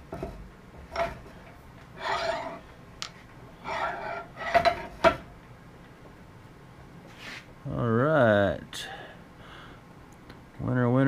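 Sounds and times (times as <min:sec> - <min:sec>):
steel parts scraping: 0:02.0 - 0:02.6, 0:03.6 - 0:05.0.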